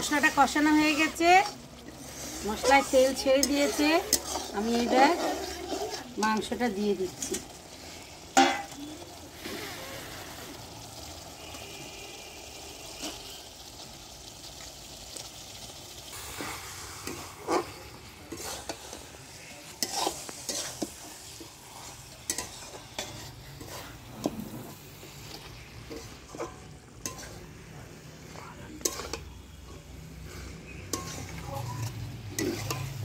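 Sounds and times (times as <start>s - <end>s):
spatula scraping and knocking pot: 0.0s - 7.5s, 19.8s - 21.5s, 22.3s - 27.4s, 28.8s - 29.9s, 30.5s - 33.0s
food sizzling in oil: 0.0s - 33.0s.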